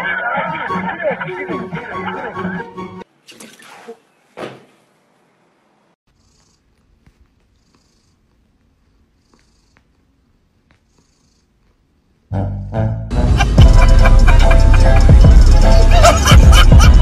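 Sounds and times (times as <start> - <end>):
cat purring: 6.1 - 12.0.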